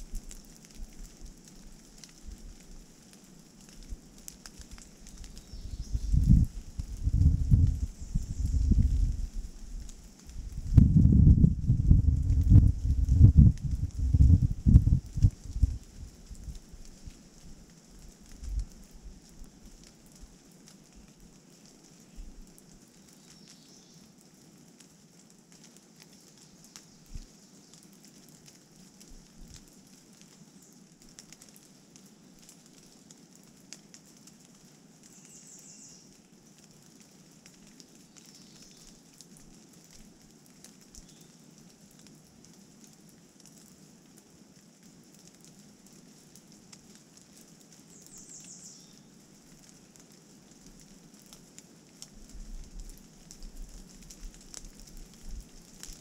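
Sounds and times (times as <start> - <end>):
rain dripping on forest floor: 0.0 - 56.0.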